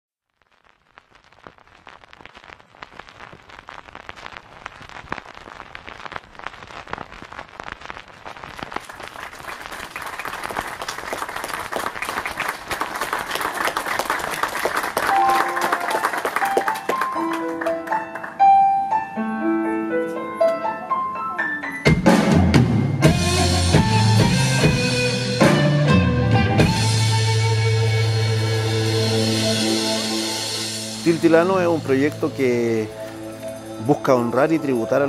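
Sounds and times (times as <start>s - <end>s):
audience applause: 8.6s - 18.5s
sustained keyboard notes: 15.1s - 22.1s, 29.0s - 35.0s.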